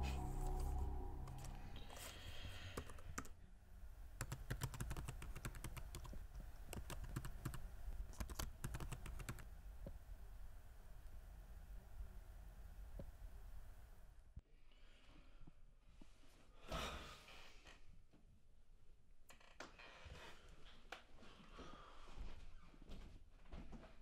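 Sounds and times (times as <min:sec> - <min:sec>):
laptop keyboard typing: 0:04.2 - 0:09.5.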